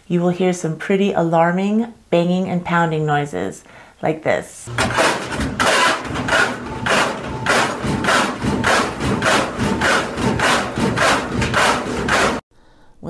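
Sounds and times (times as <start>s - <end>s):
washing machine spinning: 4.7s - 12.4s
washing machine tub banging: 4.7s - 12.4s.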